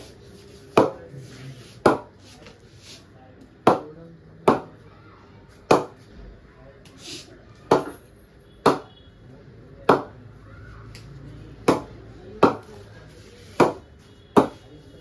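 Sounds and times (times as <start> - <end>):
ball knocking on cricket bat: 1.8 - 2.1, 8.6 - 8.9, 11.6 - 12.6, 14.4 - 14.6.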